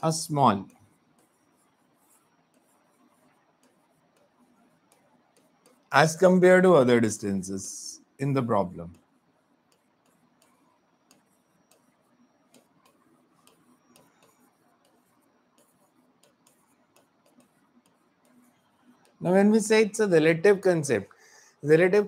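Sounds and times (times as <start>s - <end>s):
stylus tapping on touchscreen: 1.1s - 5.9s, 8.9s - 19.2s.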